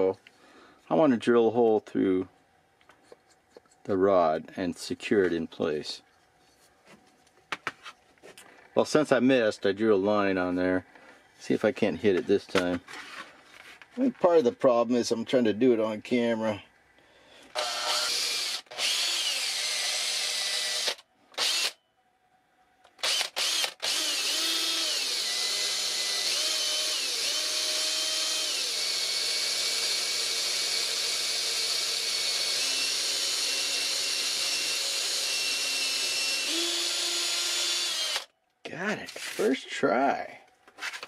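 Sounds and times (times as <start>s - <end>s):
cordless drill boring wood: 17.5s - 21.8s, 23.0s - 38.3s.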